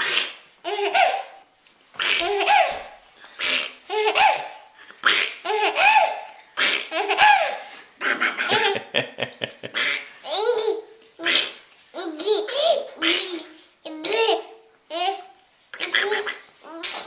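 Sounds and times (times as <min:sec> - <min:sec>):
baby laughing: 0:00.7 - 0:01.4, 0:02.1 - 0:03.0, 0:03.9 - 0:04.7, 0:05.4 - 0:10.9, 0:12.0 - 0:17.0.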